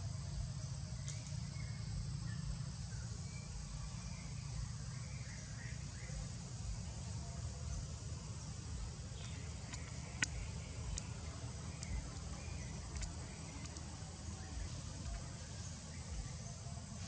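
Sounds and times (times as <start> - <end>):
faint chirps: 0.0 - 17.0
high insect drone: 0.0 - 17.0.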